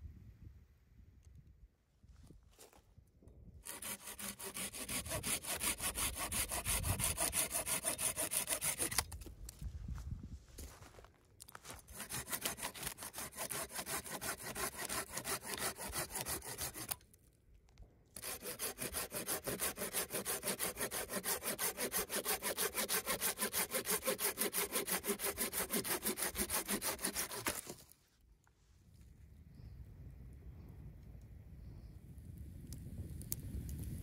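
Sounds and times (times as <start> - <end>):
hand saw cutting stems: 3.6 - 9.3, 11.8 - 17.0, 18.2 - 27.9.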